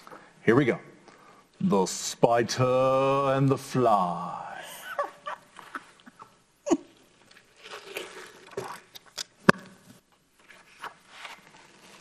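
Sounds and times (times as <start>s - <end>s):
book pages rustling: 10.4s - 12.0s.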